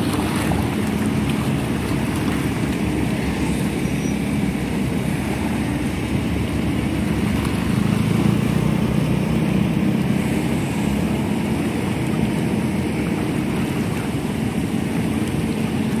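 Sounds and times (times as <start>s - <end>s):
excavator diesel engine running: 0.0s - 16.0s.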